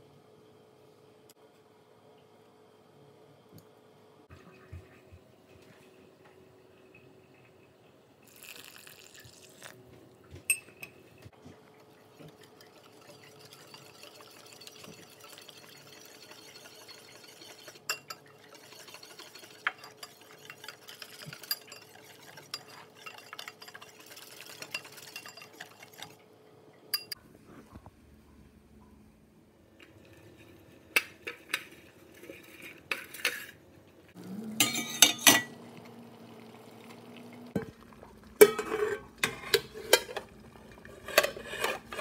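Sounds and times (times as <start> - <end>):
water pouring into bowl: 8.3 - 9.8
whisk scraping bowl: 11.5 - 26.2, 40.8 - 42.0.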